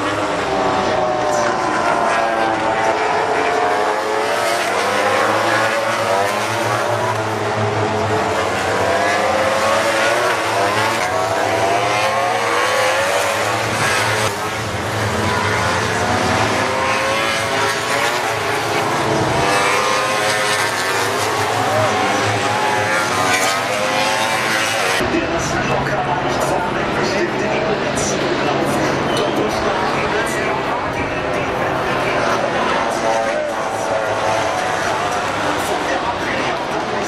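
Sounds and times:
racing motorcycles passing at high revs: 0.0s - 25.0s.

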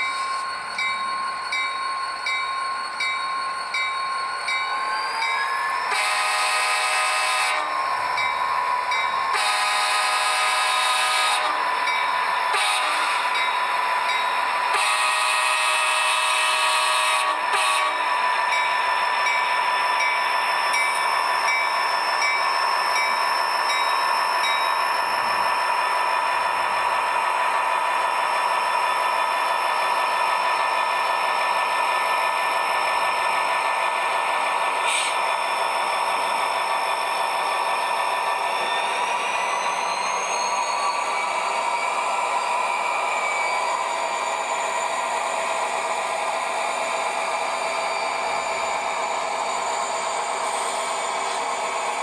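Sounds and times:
model locomotive engine and rolling: 0.0s - 52.0s
model train horn blast: 5.9s - 7.7s, 9.3s - 11.6s, 12.5s - 13.4s, 14.7s - 18.1s.

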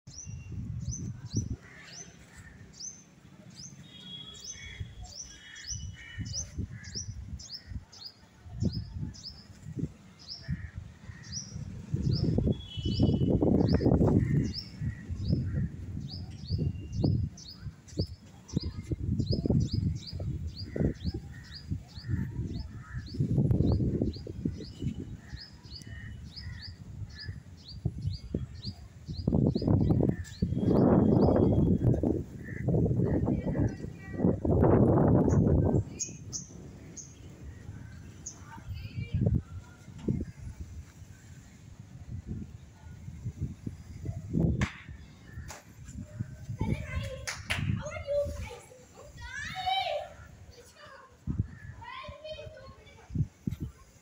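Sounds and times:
small birds chirping: 0.1s - 41.5s
low gusty rumble: 8.6s - 49.4s.

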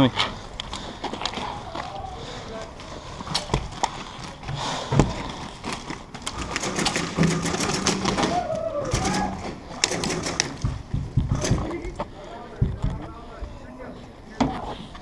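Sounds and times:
airsoft guns firing: 6.3s - 10.8s.

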